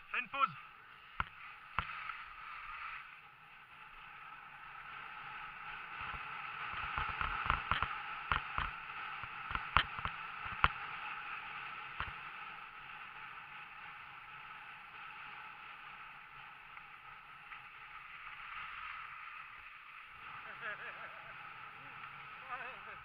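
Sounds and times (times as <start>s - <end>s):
skis scraping over snow: 0.0s - 23.0s
sharp clicks and knocks: 6.8s - 8.8s, 9.5s - 10.8s.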